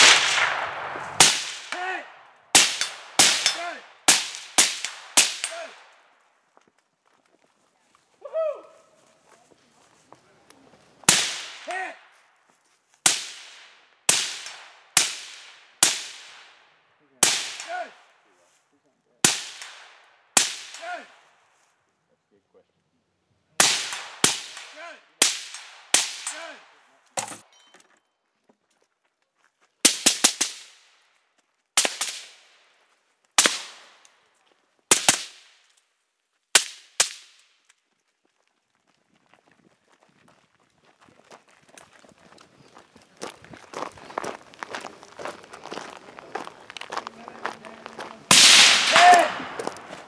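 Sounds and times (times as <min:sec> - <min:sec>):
suppressed rifle shots: 0:00.0 - 0:01.7.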